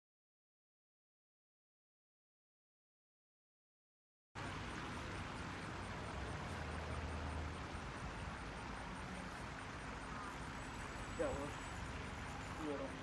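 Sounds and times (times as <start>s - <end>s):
distant road traffic rumble: 4.4s - 13.0s.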